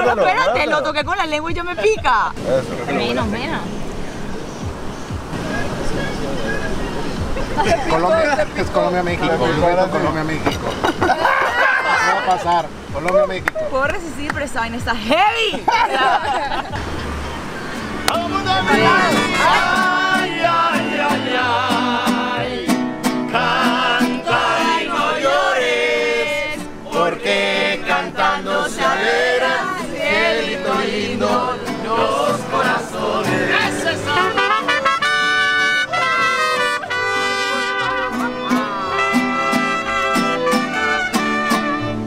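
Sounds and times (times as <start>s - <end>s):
voices singing with vibrato: 17.5s - 42.0s
brass instruments: 18.1s - 26.1s, 33.2s - 42.0s.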